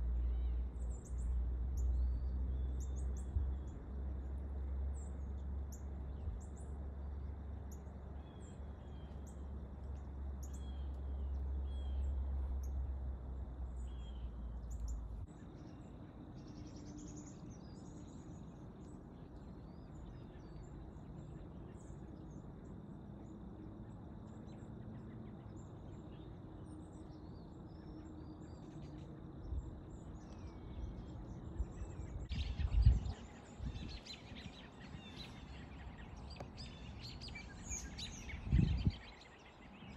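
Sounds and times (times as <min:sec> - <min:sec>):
small birds chirping: 0:00.0 - 0:39.9
low rumble: 0:29.4 - 0:39.2.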